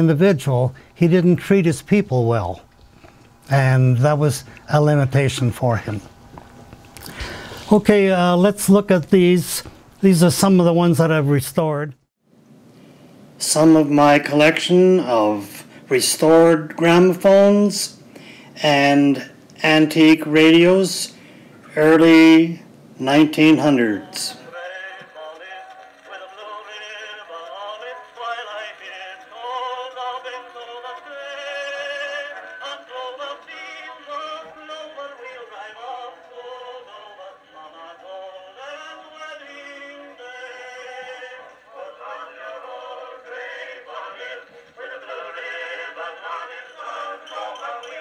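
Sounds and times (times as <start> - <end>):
gramophone record singing with music: 13.4 - 48.0.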